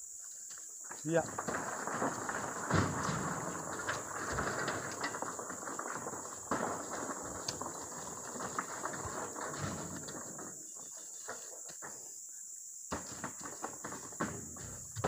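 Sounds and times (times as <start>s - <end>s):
fruit bunches knocking and thudding: 1.0s - 11.0s, 12.9s - 15.0s
high insect drone: 8.8s - 15.0s.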